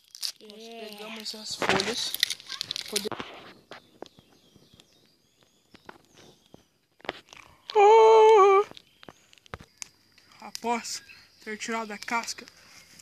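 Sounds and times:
campfire crackling: 0.0 - 13.0
faint bird chirps: 3.3 - 13.0.

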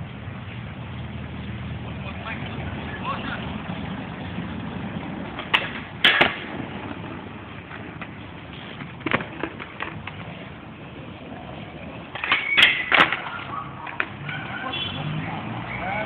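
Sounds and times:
skateboard wheels rolling on pavement: 0.0 - 16.0
skateboard clacking on ground: 5.0 - 14.7.

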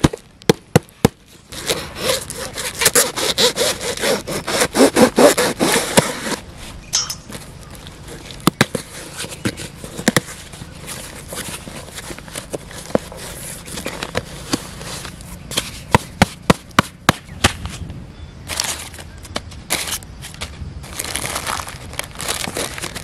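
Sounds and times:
blade cutting packing tape: 1.3 - 6.4
crumpled paper rustling: 18.5 - 23.0
cardboard cracking and snapping: 20.9 - 23.0.

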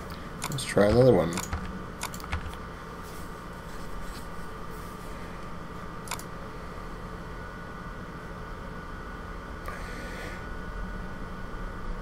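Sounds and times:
low room hum: 0.0 - 12.0
computer mouse clicks: 0.4 - 2.6, 6.1 - 6.3.

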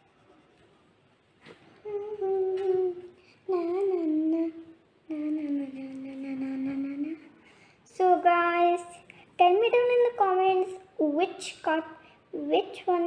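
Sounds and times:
girl humming: 1.8 - 7.4.

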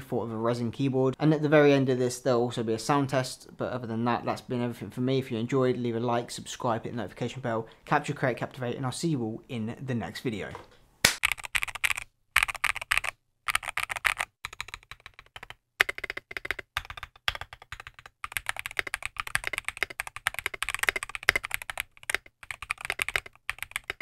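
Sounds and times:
mechanical keyboard typing: 11.2 - 24.0.

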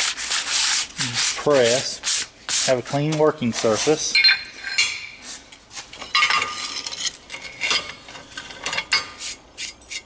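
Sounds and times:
metal parts knocking and scraping: 3.7 - 9.2
ringing metal clink: 4.1 - 5.2.

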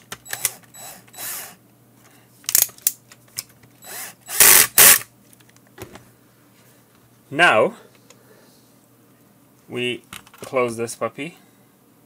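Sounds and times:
cordless drill driving screw: 0.2 - 1.6, 3.8 - 5.0.

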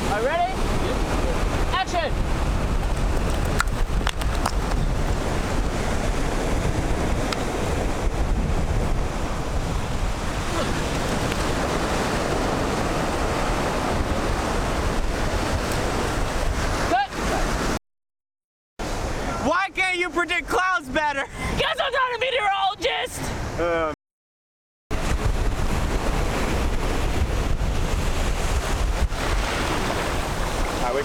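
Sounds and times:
waves breaking on beach: 0.0 - 17.8, 18.8 - 19.5, 24.9 - 31.0
wind buffeting microphone: 0.0 - 17.8, 24.9 - 31.0.

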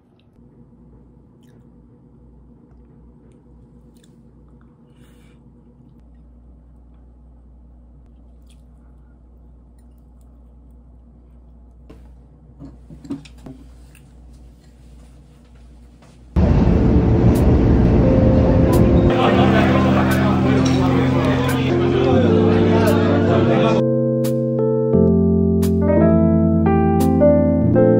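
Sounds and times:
faint eating sounds: 0.0 - 12.1, 12.7 - 15.7
loud steady noise: 16.4 - 23.8.

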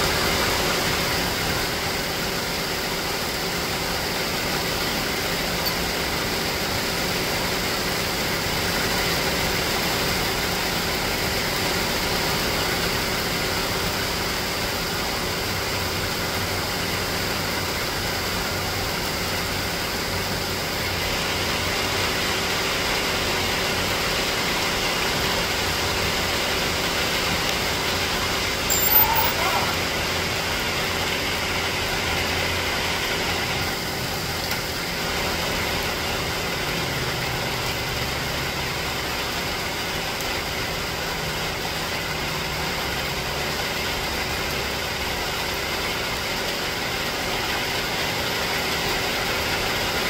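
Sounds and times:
steady rain falling: 0.0 - 50.0.

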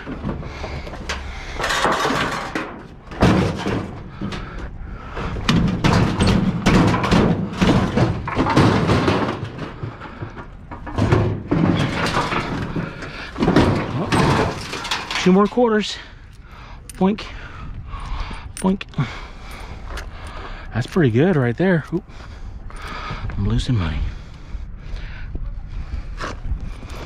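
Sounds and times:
sheet metal clanking and rattling: 0.0 - 15.6.

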